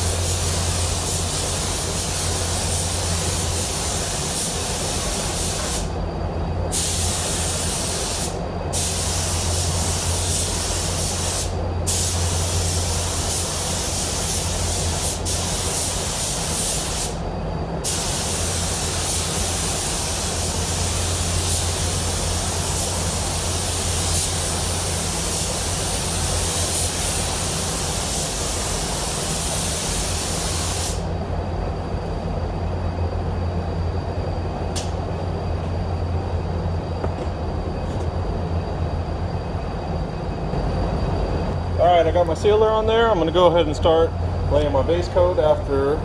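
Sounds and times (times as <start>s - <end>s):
paint spray gun hissing: 0.0s - 5.9s, 6.7s - 17.2s, 17.8s - 31.1s
ventilation hum: 0.0s - 46.0s.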